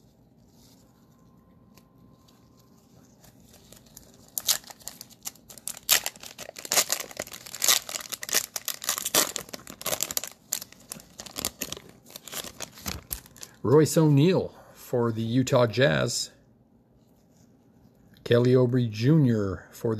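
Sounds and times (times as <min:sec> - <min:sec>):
cellophane wrapper crinkling and tearing: 0:01.7 - 0:13.6.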